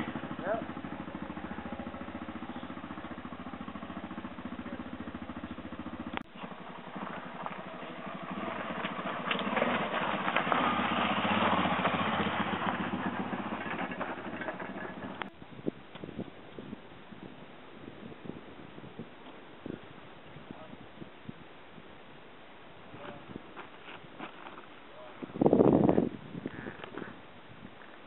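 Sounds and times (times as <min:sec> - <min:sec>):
dirt bike engine idling: 0:00.0 - 0:21.4
dirt bike riding downhill: 0:00.0 - 0:28.0.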